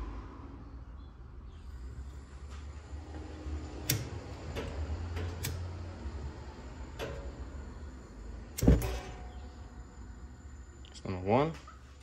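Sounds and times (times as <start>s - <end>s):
low hum: 0.0s - 12.0s
burner igniting with low thump: 1.7s - 10.2s.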